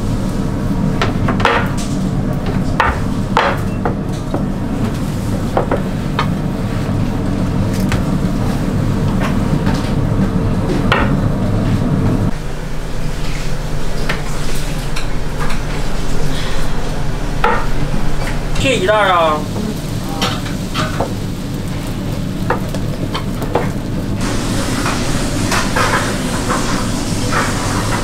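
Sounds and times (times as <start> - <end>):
low machine hum: 0.0 - 28.0.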